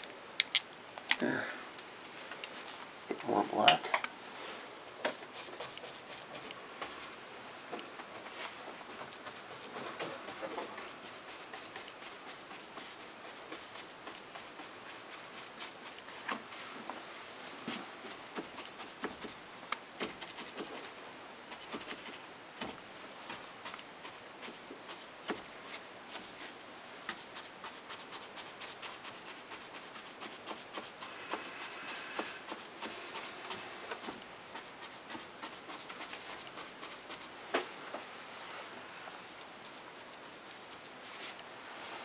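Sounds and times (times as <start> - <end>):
paintbrush dabbing and scrubbing: 4.9 - 7.0, 9.0 - 16.3, 18.1 - 19.4, 20.0 - 37.3.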